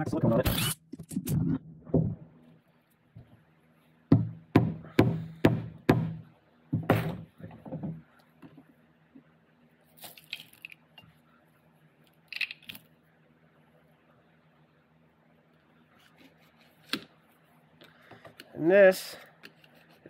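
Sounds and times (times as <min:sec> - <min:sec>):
metal parts scraping and clinking: 0:10.0 - 0:10.9, 0:12.3 - 0:12.9.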